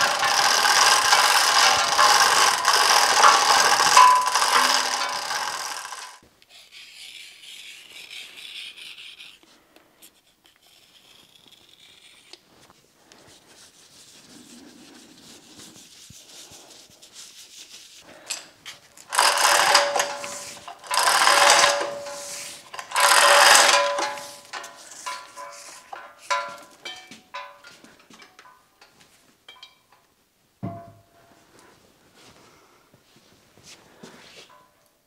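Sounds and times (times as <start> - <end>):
hoist chain rattling: 0.0 - 6.2, 19.1 - 27.7
rubbing and scraping: 0.0 - 28.0.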